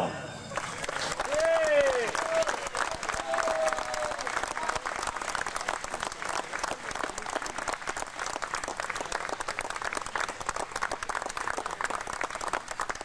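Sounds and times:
crowd applauding: 0:00.4 - 0:13.0.

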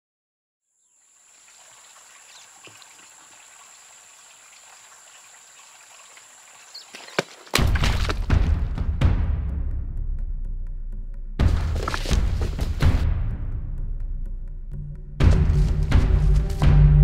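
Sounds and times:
soft forest hiss: 0:00.7 - 0:07.4
water drips: 0:01.0 - 0:08.3
water splashing over leaf litter: 0:01.0 - 0:08.5.

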